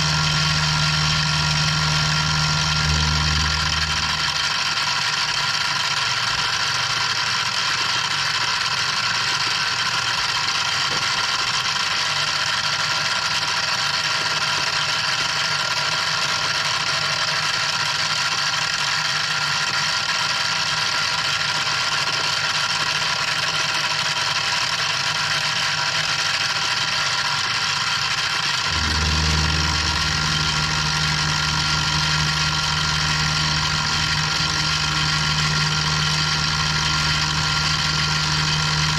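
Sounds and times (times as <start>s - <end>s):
low hum: 0.0s - 5.4s, 28.6s - 38.9s
milling machine cutting wood: 0.0s - 38.9s.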